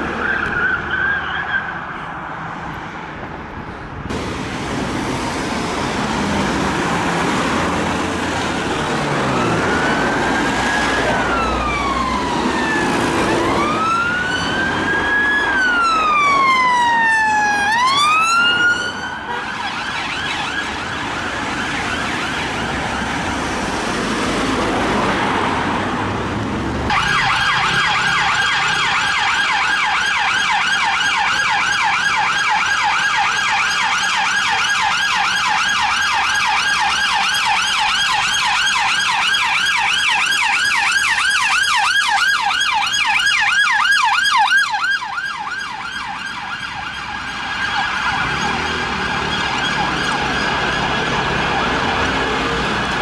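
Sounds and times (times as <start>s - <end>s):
road traffic: 0.0s - 53.0s
police siren wailing: 5.9s - 25.9s, 26.8s - 53.0s
siren rapid yelp: 9.1s - 23.0s, 26.9s - 52.5s
siren warble: 9.3s - 22.4s, 26.9s - 52.0s.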